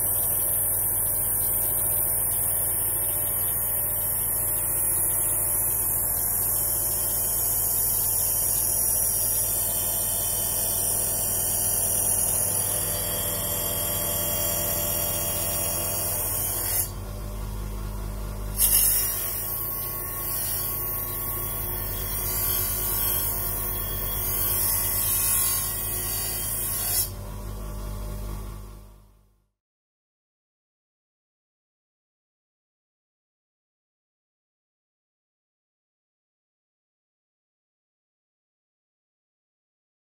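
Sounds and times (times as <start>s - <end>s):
bench grinder motor hum: 0.0s - 28.5s.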